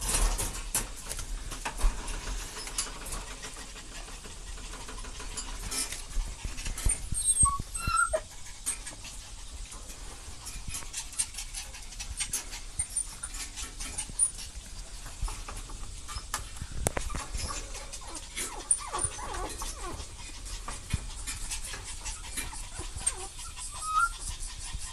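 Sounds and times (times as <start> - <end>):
claws scrabbling on wire cage: 0.0 - 23.4
puppies whimpering: 4.5 - 9.7, 17.0 - 24.9
high squeaks: 6.8 - 8.9.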